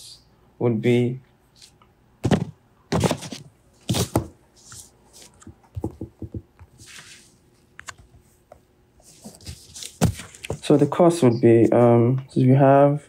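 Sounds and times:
thump on desk: 2.2 - 3.2.

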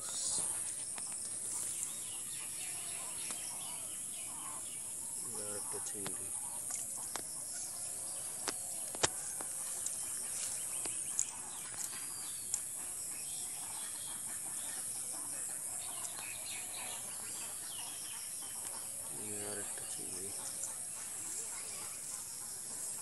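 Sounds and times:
steady high hiss: 0.0 - 13.8
chickens clucking: 8.4 - 23.0.

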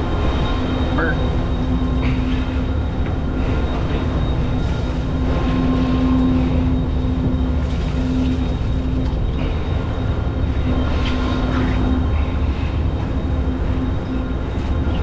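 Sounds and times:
low machinery rumble: 0.0 - 15.0
steady hum: 0.0 - 15.0.

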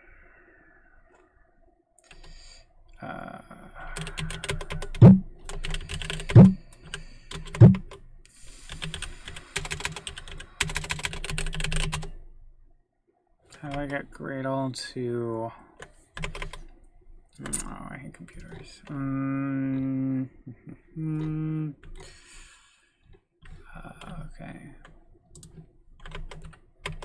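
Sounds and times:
loud thumps: 7.6 - 7.8.

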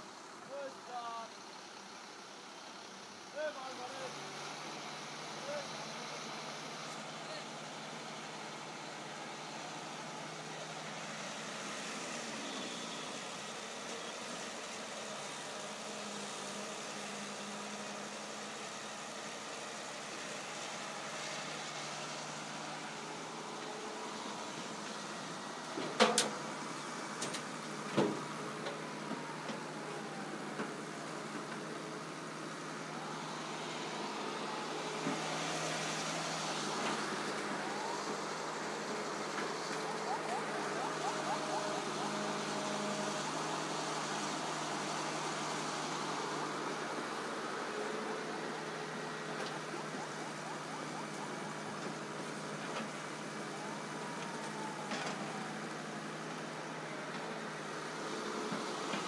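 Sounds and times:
excavator diesel engine running: 0.0 - 59.0
faint rising whines: 28.3 - 55.5.

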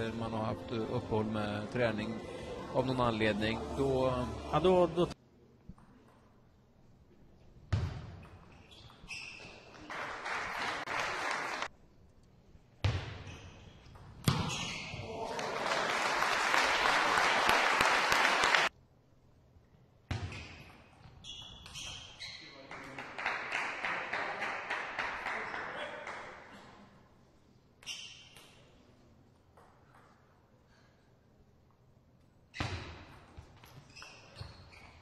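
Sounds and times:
crowd noise: 0.0 - 5.2.

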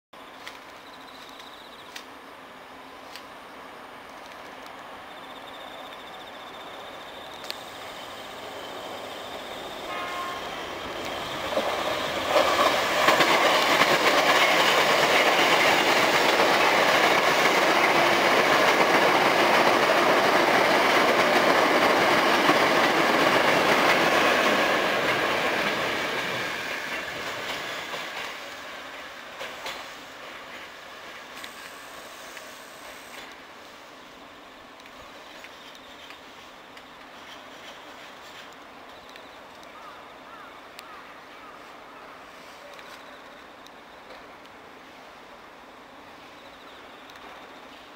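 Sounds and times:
train wheels rumbling on rails: 2.8 - 40.0
clickety-clack over rail joints: 9.9 - 32.5, 34.8 - 40.0.

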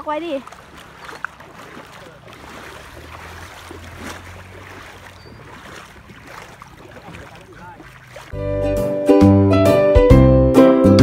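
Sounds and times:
water lapping at shoreline: 0.0 - 8.4.

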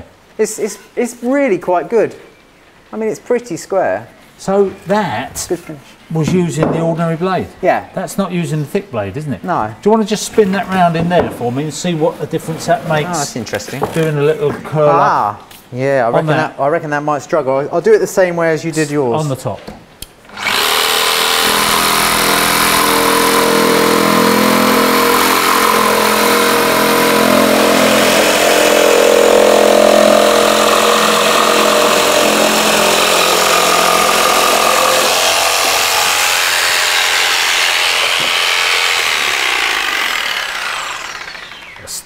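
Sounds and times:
jigsaw cutting timber: 20.3 - 41.8.

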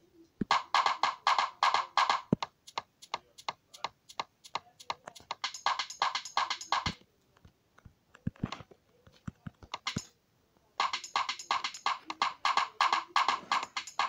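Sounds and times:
electronic synth-percussion loop: 0.5 - 7.0, 9.7 - 10.1, 10.8 - 14.0.

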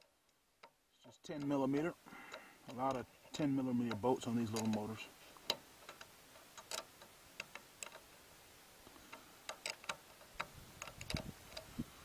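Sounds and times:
wrench clicking: 5.4 - 8.1, 9.5 - 11.7.

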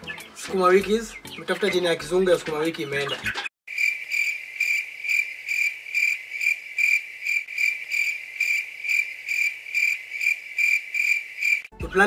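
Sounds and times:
cricket chirping: 3.7 - 11.7.

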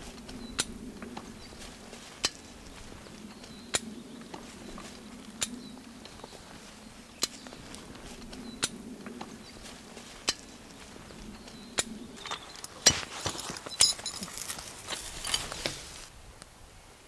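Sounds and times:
chain clinking and rattling: 10.3 - 11.1, 12.2 - 15.8.

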